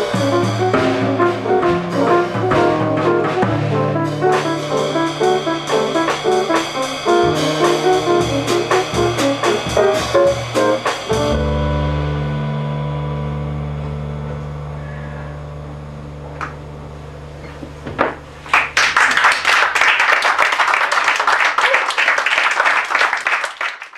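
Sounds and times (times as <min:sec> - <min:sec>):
jazz piano and upright bass chord: 0:00.0 - 0:17.8
audience applause: 0:18.5 - 0:23.9.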